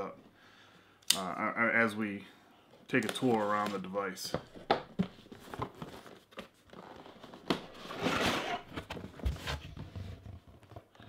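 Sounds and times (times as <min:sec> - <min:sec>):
cardboard scraping and rustling: 0:04.5 - 0:10.9.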